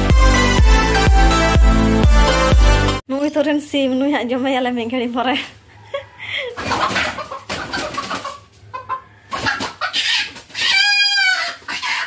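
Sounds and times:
chicken squawking: 6.5 - 12.0
wings flapping: 6.6 - 8.4.

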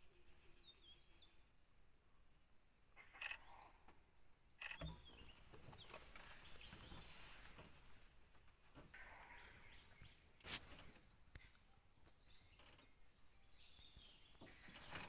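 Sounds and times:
sharp clicks: 4.6 - 5.0.

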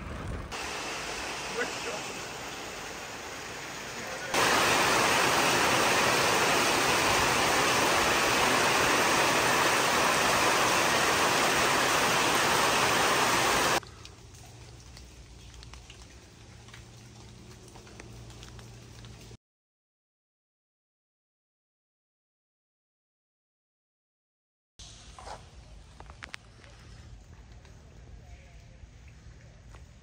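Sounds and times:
heavy rain on pavement: 0.0 - 19.4.

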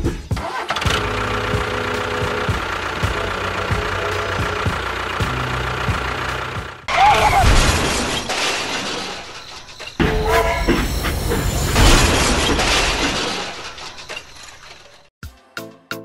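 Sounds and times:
tractor engine running: 0.3 - 7.1
loud crash: 6.9 - 15.1.

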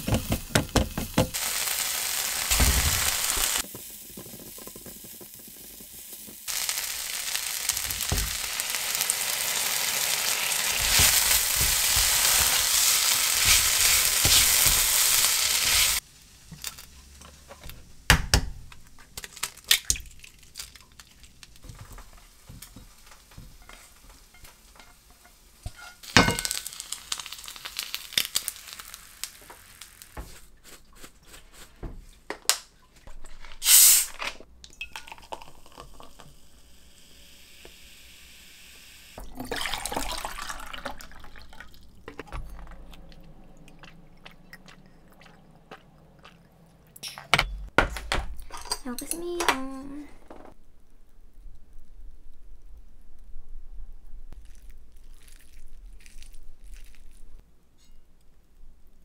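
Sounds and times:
hissing noise: 0.0 - 16.1, 33.6 - 34.2
utensils clinking against pans: 22.0 - 26.7, 48.4 - 49.8.

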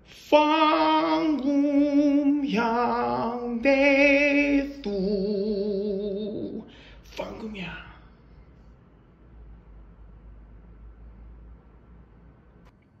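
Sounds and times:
woman singing with vibrato: 0.0 - 6.7.

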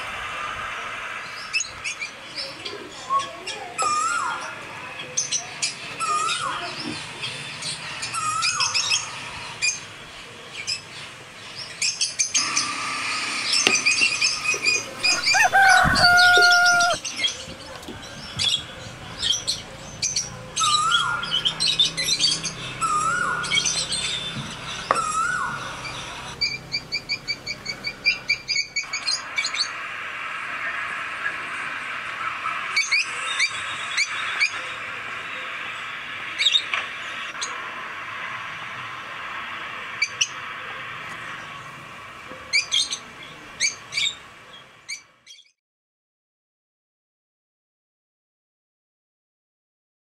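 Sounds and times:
birds chirping and calling: 1.1 - 12.7, 13.3 - 29.8, 32.2 - 37.6, 42.4 - 45.5.

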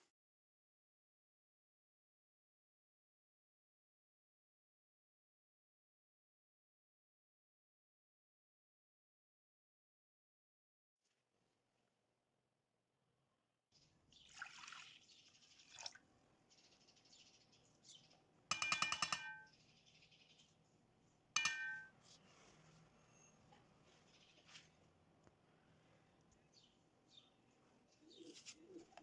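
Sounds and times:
milk pouring into metal pot: 14.2 - 16.1
glass cup rattling and clinking: 18.5 - 19.5
sharp ringing glass clink: 18.5 - 19.5, 21.4 - 22.0.

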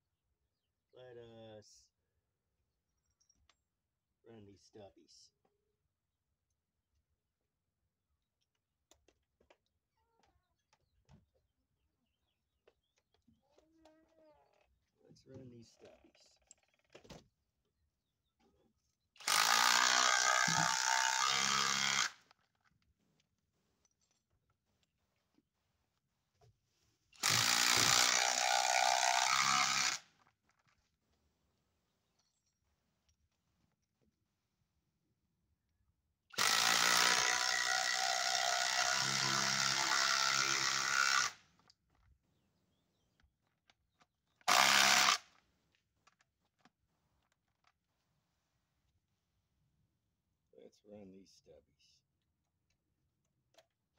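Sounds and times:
impact driver driving screw: 19.2 - 22.2, 27.2 - 30.0, 36.4 - 38.0, 44.4 - 45.3.

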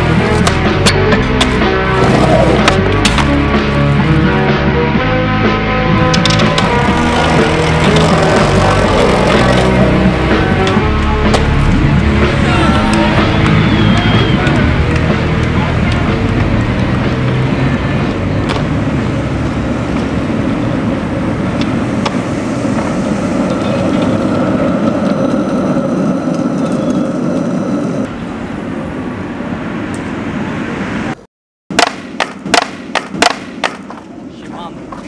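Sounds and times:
skateboard wheels rolling on asphalt: 0.0 - 31.2, 31.8 - 35.0
sharp knocks: 31.7 - 34.0.

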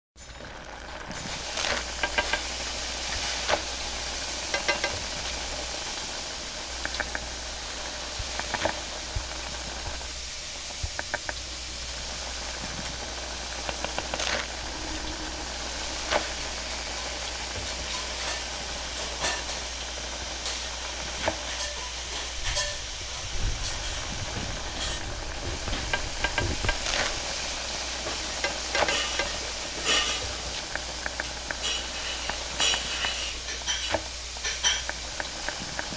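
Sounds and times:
flatbreads sizzling on a griddle: 0.2 - 35.9
steady low hum: 0.4 - 35.9
sharp clicks and knocks: 1.1 - 2.5, 4.5 - 5.1, 6.8 - 7.3, 10.8 - 11.4, 23.6 - 27.2.

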